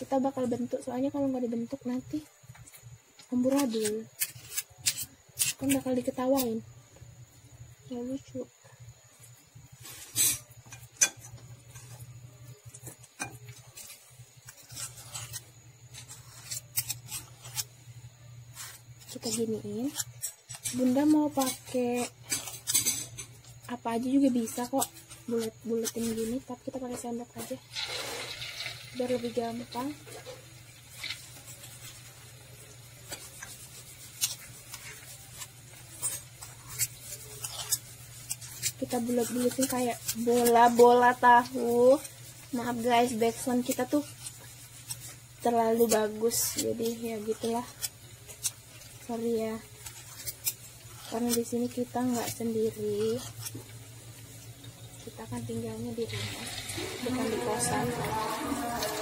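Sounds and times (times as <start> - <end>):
spoons scraping and clicking: 1.9 - 6.7, 9.2 - 59.0
metal spoons scraping dishes: 10.0 - 12.0, 19.3 - 23.4.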